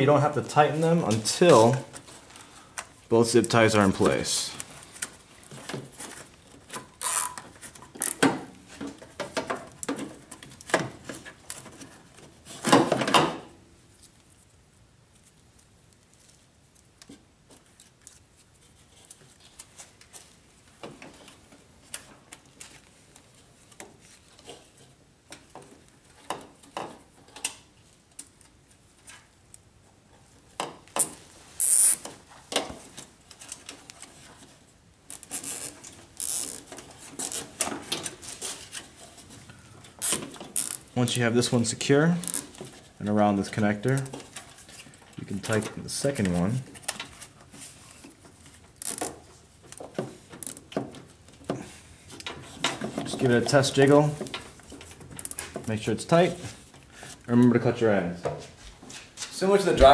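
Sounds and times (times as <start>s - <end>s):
zip ties clicking: 7.0s - 7.4s, 31.0s - 32.0s, 35.1s - 36.6s, 40.0s - 40.8s.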